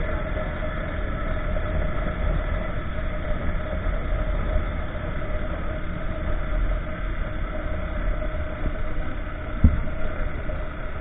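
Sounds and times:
motorcycle engine drone: 0:00.0 - 0:11.0
wind rush on microphone: 0:00.0 - 0:11.0
brief thump: 0:09.6 - 0:09.9.

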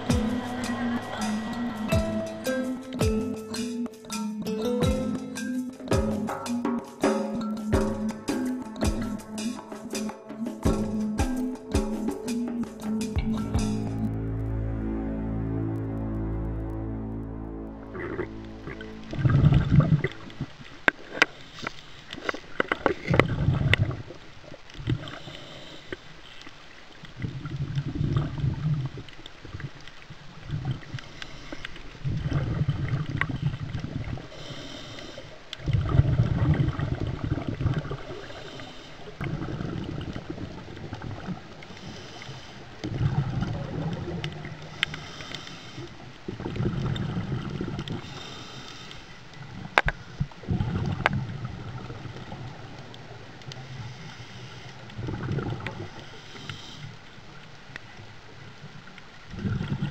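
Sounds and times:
exhaled bubbles rumbling: 0:00.0 - 0:03.4, 0:12.6 - 0:21.4, 0:22.2 - 0:25.3, 0:26.9 - 0:31.2, 0:31.8 - 0:34.6, 0:35.3 - 0:45.1, 0:45.9 - 0:48.3, 0:49.4 - 0:54.0, 0:54.6 - 0:56.1, 0:57.2 - 0:59.9
regulator hiss on inhale: 0:20.9 - 0:23.1, 0:25.0 - 0:26.5, 0:30.9 - 0:32.0, 0:34.1 - 0:35.6, 0:38.1 - 0:39.3, 0:41.5 - 0:43.0, 0:44.5 - 0:46.3, 0:47.8 - 0:50.4, 0:53.5 - 0:57.4.

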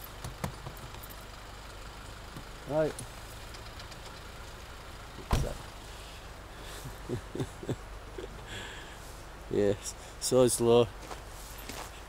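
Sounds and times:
pickup truck engine running: 0:00.0 - 0:08.9.

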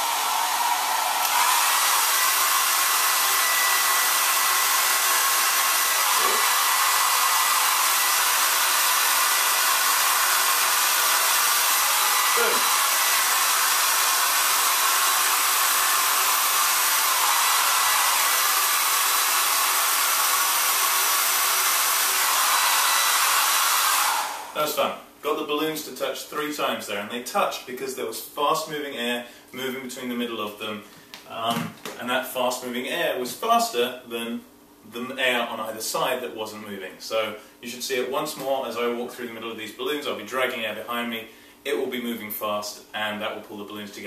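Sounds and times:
hair dryer blowing: 0:00.0 - 0:24.7.

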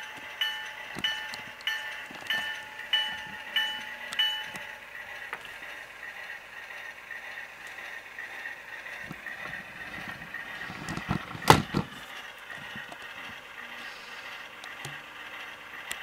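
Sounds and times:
model train diesel engine sound: 0:00.0 - 0:16.0.

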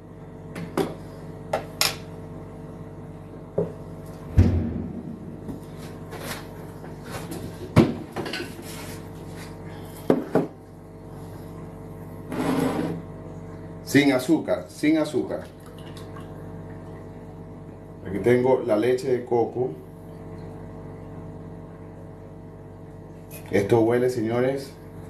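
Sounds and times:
steady low hum: 0:00.0 - 0:25.0
heavy thud: 0:04.3 - 0:06.0.

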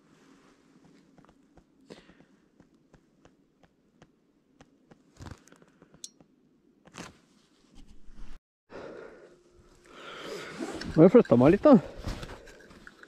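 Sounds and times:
snow and clothing crunching: 0:05.0 - 0:05.5.

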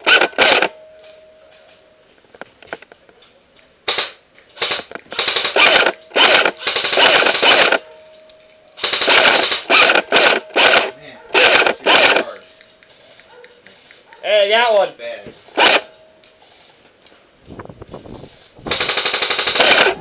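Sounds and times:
airsoft gun firing full-auto bursts: 0:00.0 - 0:00.7, 0:03.9 - 0:07.8, 0:08.8 - 0:12.3, 0:15.6 - 0:15.9, 0:18.7 - 0:20.0.

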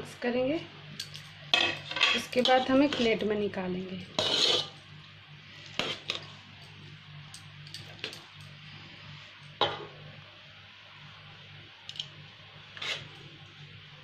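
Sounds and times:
metal spoon scraping steel pot: 0:04.2 - 0:04.8, 0:12.8 - 0:13.1.

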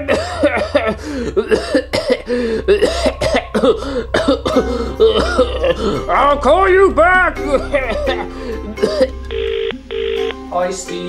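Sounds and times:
low hum: 0:00.0 - 0:10.5
man making dinosaur vocal sounds: 0:04.4 - 0:09.1.

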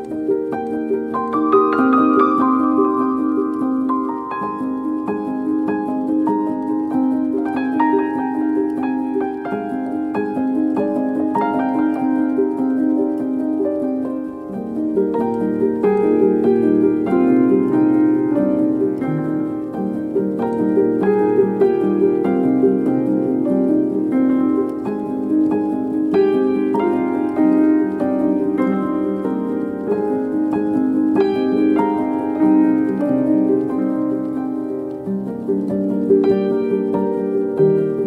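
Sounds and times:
piano music: 0:00.0 - 0:38.0.

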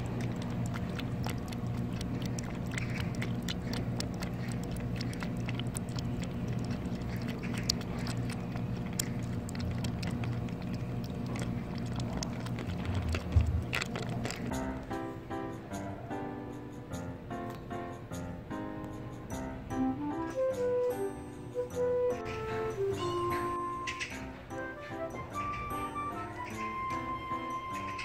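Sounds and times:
cat lapping liquid: 0:00.0 - 0:14.9
steady low hum: 0:00.0 - 0:14.9.

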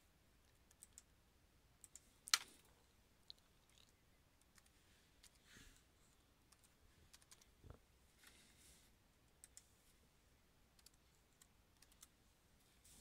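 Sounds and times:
mouse clicks: 0:09.4 - 0:09.7, 0:10.8 - 0:12.1.

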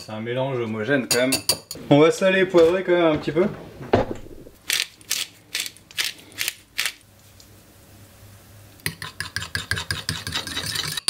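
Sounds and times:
pepper mill grinding: 0:04.6 - 0:07.0
fork beating eggs in ceramic bowl: 0:08.8 - 0:11.0.

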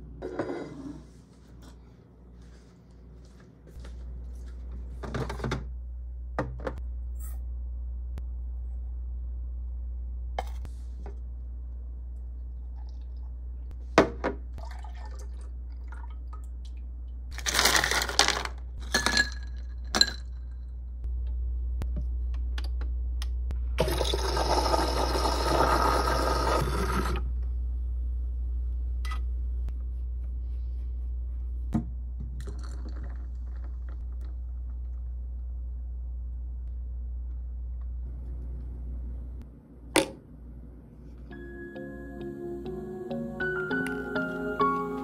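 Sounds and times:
milk pouring into pitcher: 0:14.6 - 0:16.2
espresso machine hum: 0:23.8 - 0:27.3.

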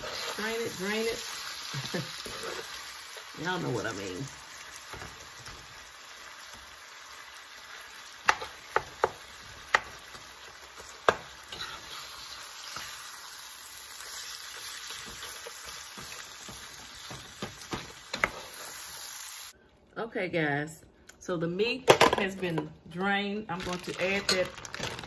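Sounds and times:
meat sizzling in a pan: 0:00.0 - 0:19.6.

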